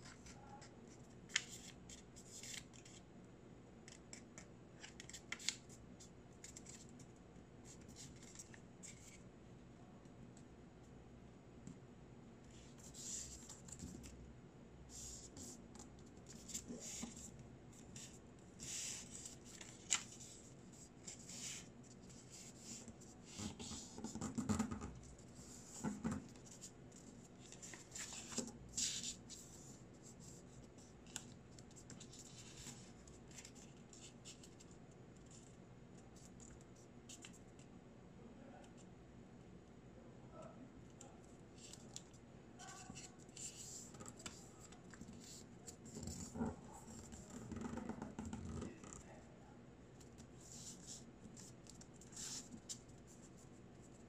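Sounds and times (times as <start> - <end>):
paper folding and rustling: 16.3 - 24.2, 25.3 - 29.6.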